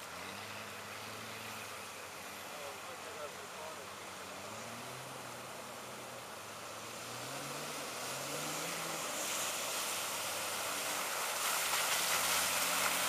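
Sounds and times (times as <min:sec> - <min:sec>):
water splashing off tyres: 0:00.0 - 0:13.0.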